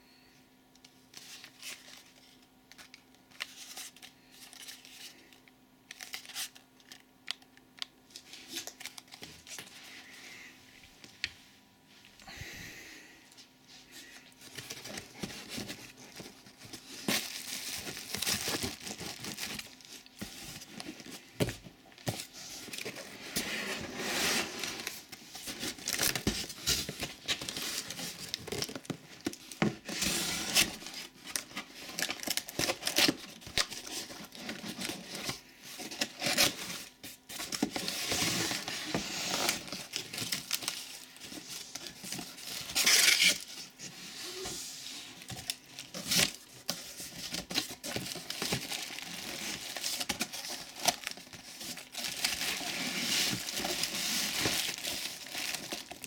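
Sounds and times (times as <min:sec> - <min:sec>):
plastic wrapping crinkling: 0:13.9 - 0:23.5, 0:24.7 - 0:44.5, 0:45.1 - 0:56.0
cardboard rustling and tearing: 0:14.4 - 0:56.0.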